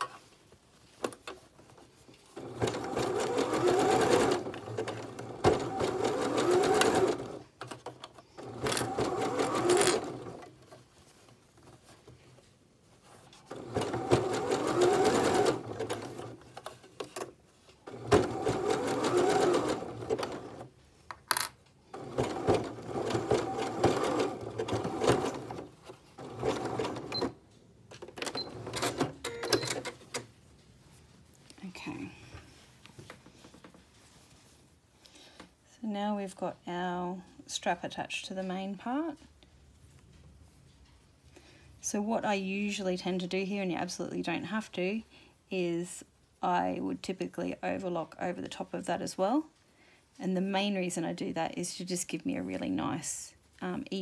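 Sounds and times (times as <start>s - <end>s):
sewing machine stitching: 2.4s - 10.5s, 13.5s - 16.7s, 17.8s - 20.7s, 21.9s - 27.4s.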